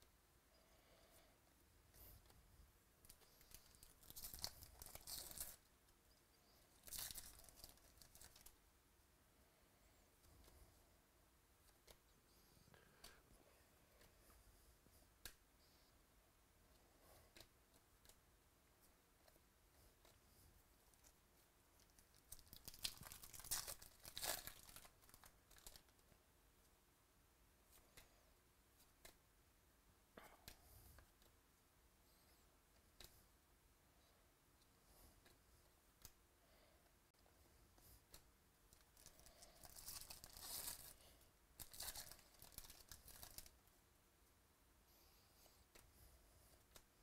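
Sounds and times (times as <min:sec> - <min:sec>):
foil wrapper tearing and crinkling: 0:03.6 - 0:05.6, 0:06.8 - 0:08.5, 0:22.2 - 0:25.8, 0:39.0 - 0:41.0, 0:41.6 - 0:43.5.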